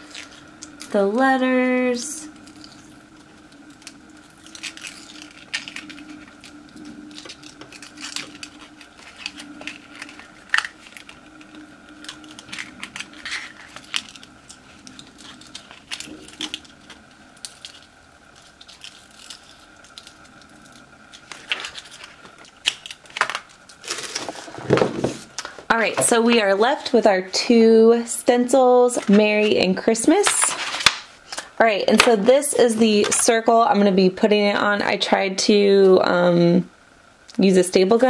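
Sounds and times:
vinyl peeling crackles and ticks: 0.0s - 1.2s, 2.2s - 24.6s, 29.0s - 33.4s
faint steady hum: 0.0s - 38.0s.

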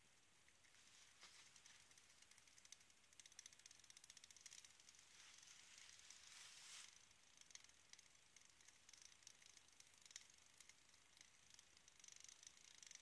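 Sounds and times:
alcohol stove ticking and crackling: 0.0s - 13.0s
burner jets hissing: 6.1s - 6.9s.

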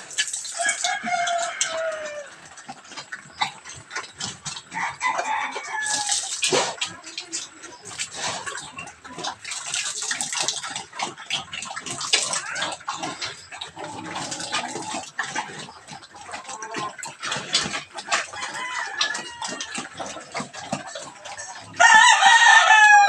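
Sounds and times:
chickens clucking: 0.0s - 23.0s
pig eating wet feed: 0.0s - 23.0s
rooster crowing: 0.6s - 2.3s, 4.8s - 6.2s, 18.4s - 19.8s, 21.8s - 23.0s.

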